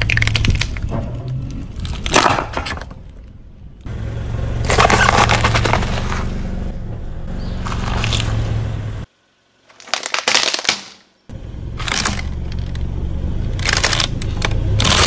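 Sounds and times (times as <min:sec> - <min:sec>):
tyre crushing cans: 0:00.0 - 0:03.0, 0:04.7 - 0:06.3, 0:09.7 - 0:11.1
car engine idling: 0:00.0 - 0:09.6, 0:11.3 - 0:15.0
tyre crunching cabbage leaf: 0:07.6 - 0:08.5.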